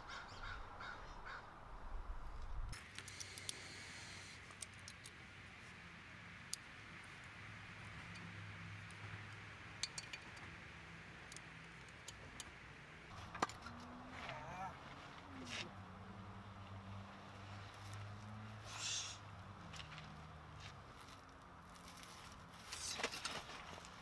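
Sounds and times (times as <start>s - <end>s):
metallic clicks of tools: 9.8s - 10.5s.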